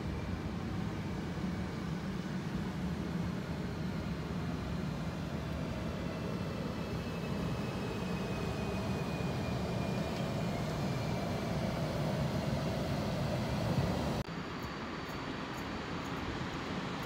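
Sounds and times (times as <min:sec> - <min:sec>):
faint high whine: 0:00.0 - 0:17.0.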